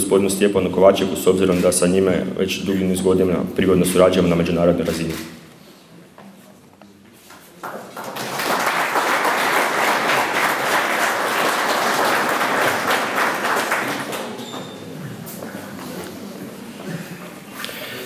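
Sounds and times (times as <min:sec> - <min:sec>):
audience applauding: 0:07.6 - 0:14.8.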